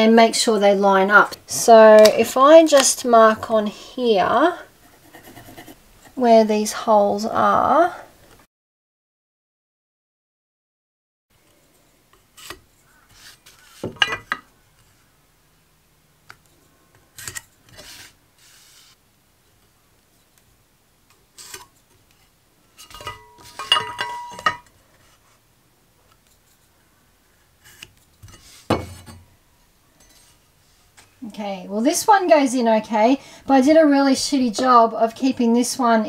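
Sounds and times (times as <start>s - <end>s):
pencil scratching on wood: 4.8s - 5.8s
ringing metal clink: 23.0s - 24.7s.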